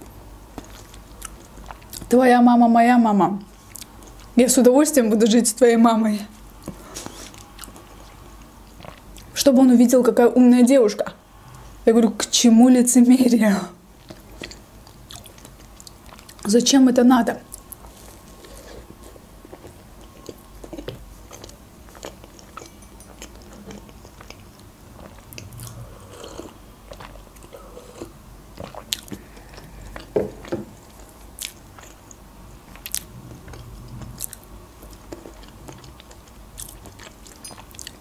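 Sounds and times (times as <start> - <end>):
biting and chewing pastry: 17.5 - 38.0.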